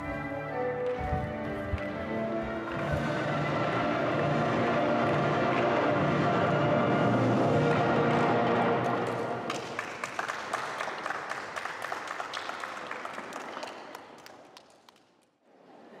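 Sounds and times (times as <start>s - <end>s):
group of people applauding: 7.7s - 15.4s
separate hand claps: 8.8s - 15.4s.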